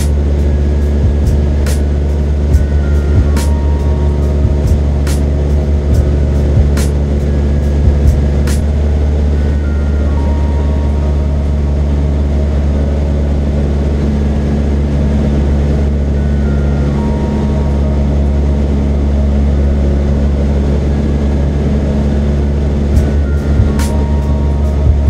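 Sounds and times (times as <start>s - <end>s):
small plane engine droning: 0.0s - 25.0s.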